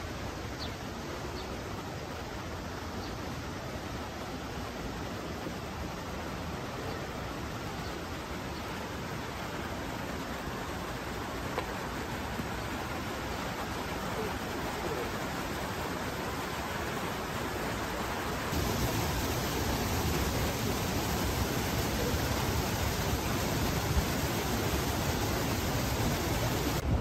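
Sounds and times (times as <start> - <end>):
river rushing over weir: 0.0 - 27.0.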